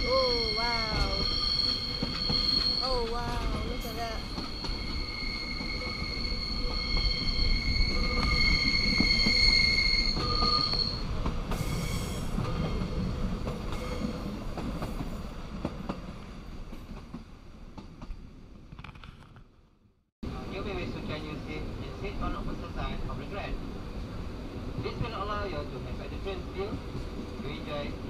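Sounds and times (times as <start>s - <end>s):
train wheels squealing: 0.0s - 14.3s.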